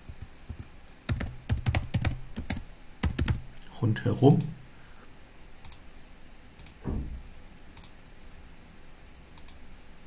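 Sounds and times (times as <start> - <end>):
computer mouse clicks: 5.6 - 5.8, 6.6 - 6.8, 7.8 - 8.0, 9.4 - 9.6
short low thud: 6.8 - 7.3.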